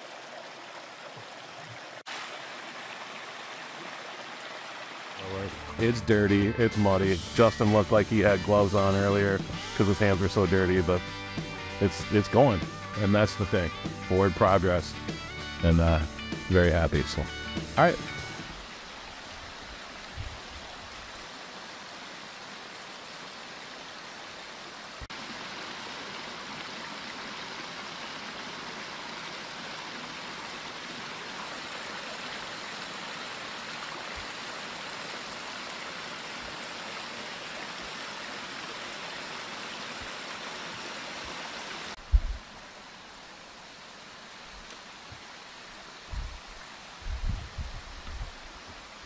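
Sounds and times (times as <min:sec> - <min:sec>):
water rushing over rocks: 0:00.0 - 0:06.1, 0:17.8 - 0:43.0
loud thump: 0:42.0 - 0:42.4.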